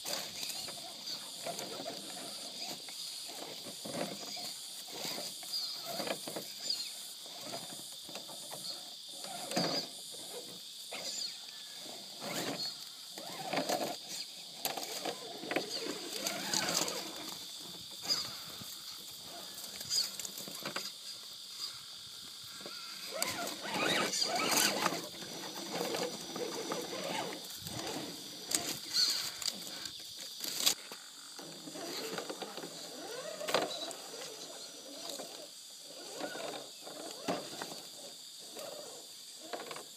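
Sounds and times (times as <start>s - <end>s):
rc car motor whirring: 0.0s - 39.9s
tyres scraping on rock: 14.8s - 18.3s, 23.0s - 29.4s.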